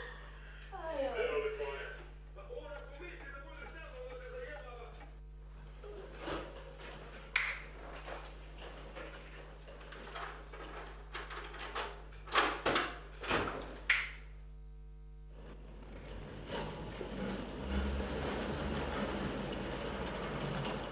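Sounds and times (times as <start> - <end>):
steady low hum: 0.0 - 11.2, 13.0 - 20.9.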